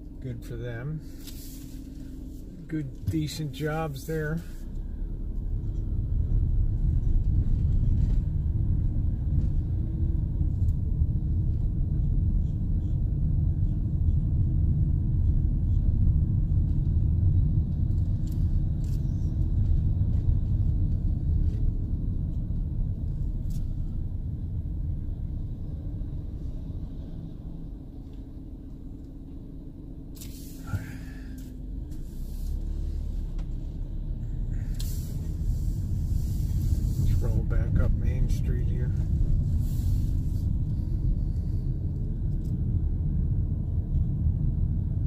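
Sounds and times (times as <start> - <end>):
road and engine rumble inside van: 0.0 - 45.0.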